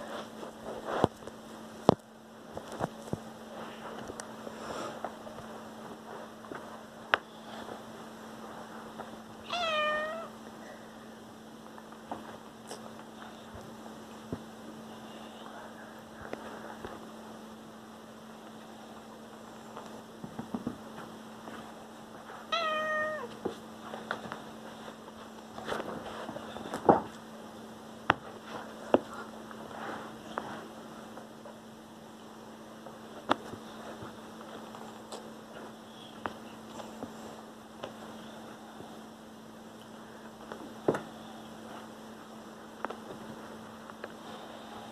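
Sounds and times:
steady low hum: 0:00.0 - 0:44.9
cat meowing: 0:09.4 - 0:10.3, 0:22.5 - 0:23.3.

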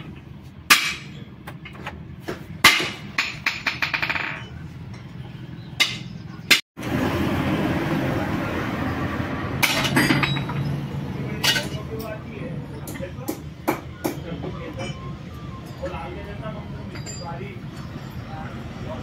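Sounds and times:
steady background noise: 0:00.0 - 0:19.0
metal tools knocking and clinking: 0:02.6 - 0:05.2, 0:05.8 - 0:06.2, 0:09.6 - 0:10.8, 0:11.4 - 0:12.2, 0:16.9 - 0:18.2.

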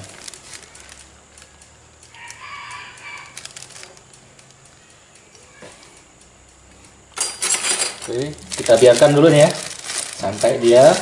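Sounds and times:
plastic bag crinkling: 0:00.0 - 0:04.9, 0:07.2 - 0:11.0.

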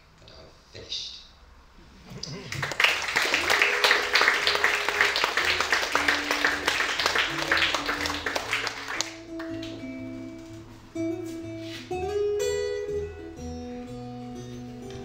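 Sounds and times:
audience applause: 0:02.2 - 0:09.7
fingerpicked acoustic guitar: 0:03.7 - 0:15.0.

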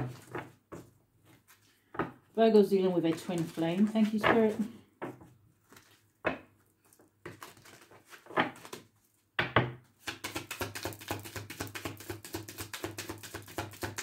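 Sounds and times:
cards being shuffled: 0:03.0 - 0:04.7, 0:05.6 - 0:06.0, 0:06.8 - 0:08.9, 0:10.0 - 0:14.0
cards slapping: 0:07.3 - 0:08.8, 0:10.0 - 0:14.0.

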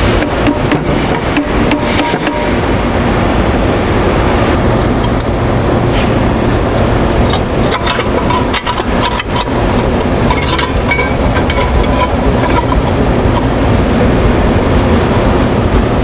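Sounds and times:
industrial machinery rumbling: 0:00.0 - 0:16.0.

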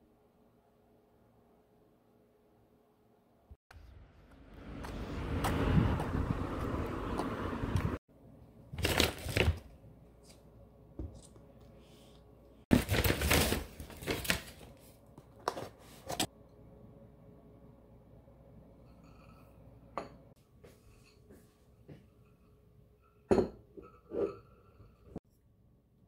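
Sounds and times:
packaging rustling and crinkling: 0:08.8 - 0:09.6, 0:12.7 - 0:14.9.

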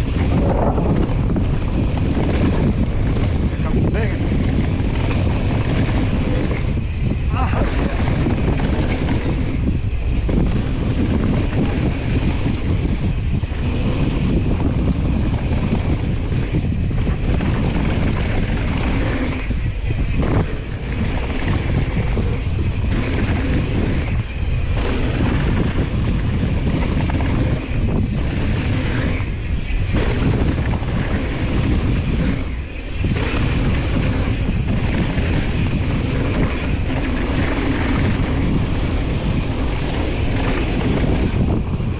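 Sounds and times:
wind buffeting microphone: 0:00.0 - 0:41.9.

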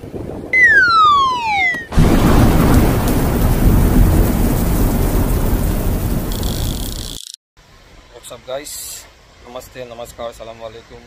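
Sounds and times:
whistling tone sliding down: 0:00.6 - 0:02.0.

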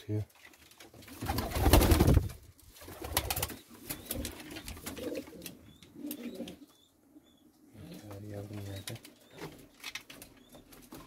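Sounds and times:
pigeons cooing: 0:02.9 - 0:09.7.

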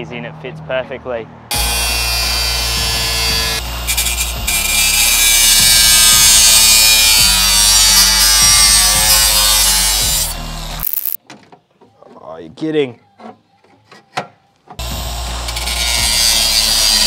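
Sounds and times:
background music with bass line: 0:00.0 - 0:10.9
angle grinder cutting metal: 0:01.5 - 0:11.2, 0:14.8 - 0:17.0.

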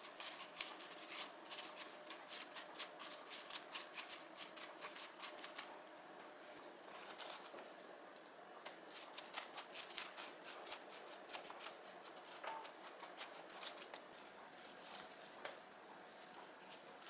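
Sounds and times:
sticky clicks and pats of spreading paste: 0:00.0 - 0:06.0, 0:07.1 - 0:14.1.

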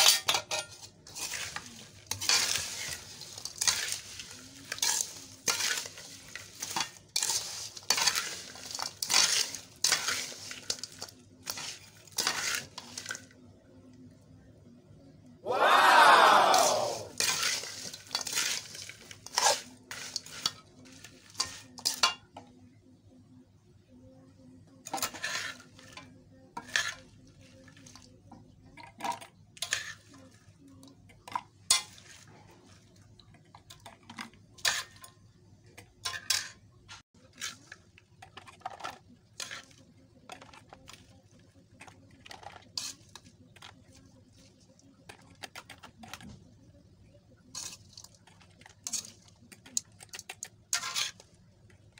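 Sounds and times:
metal spoon scraping a metal pan: 0:00.0 - 0:13.3, 0:17.1 - 0:22.3, 0:24.8 - 0:28.0, 0:29.1 - 0:30.4, 0:31.2 - 0:32.3, 0:33.7 - 0:35.2, 0:36.0 - 0:36.6, 0:37.2 - 0:41.1, 0:41.7 - 0:44.4, 0:47.5 - 0:51.4.

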